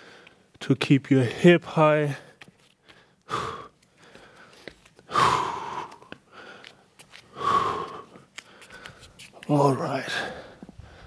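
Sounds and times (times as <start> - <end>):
heavy forceful breaths: 2.1 - 9.2, 10.0 - 11.0.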